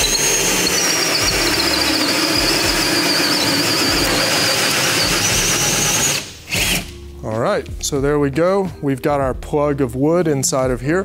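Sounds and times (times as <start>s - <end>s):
cordless drill motor whine: 0.0s - 6.9s
hole saw cutting wood: 0.0s - 7.0s.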